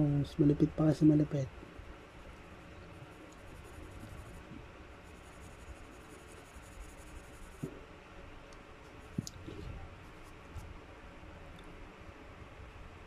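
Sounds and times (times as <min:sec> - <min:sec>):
pencil scratching on paper: 0:03.0 - 0:07.6.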